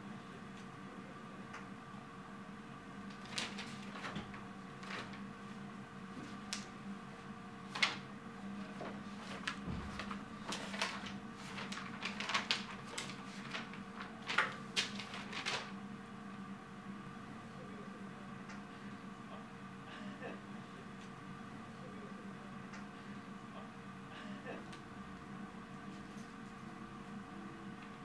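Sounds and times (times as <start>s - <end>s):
steady low hum: 0.0s - 28.0s
pages being turned: 3.1s - 5.2s, 7.7s - 8.0s, 8.7s - 15.8s
paper rustling: 3.1s - 5.2s, 7.7s - 8.0s, 8.6s - 15.8s.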